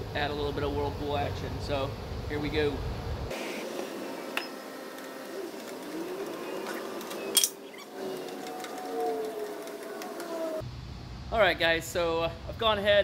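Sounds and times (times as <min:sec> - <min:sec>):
gas burner roaring: 0:00.0 - 0:08.8.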